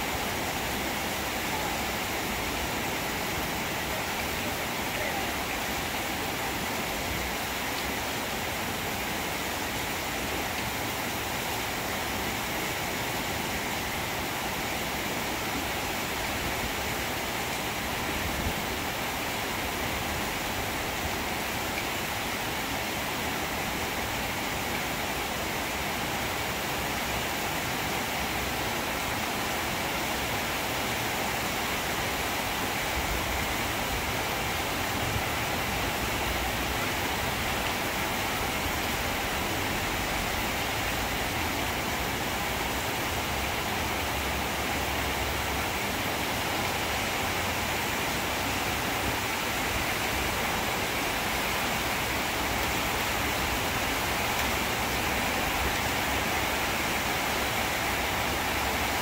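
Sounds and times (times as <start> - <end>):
rain falling on foliage: 0.0 - 59.0.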